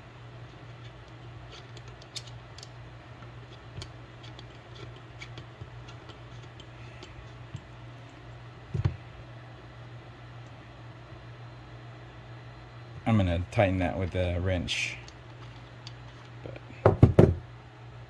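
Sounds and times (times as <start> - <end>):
steady low hum: 0.0 - 18.0
clicks of fitting being turned: 3.5 - 7.7
loud knock: 16.8 - 17.4.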